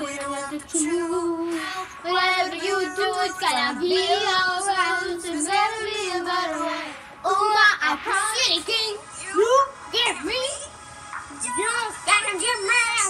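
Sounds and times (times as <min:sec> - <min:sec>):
children singing: 0:00.0 - 0:09.0.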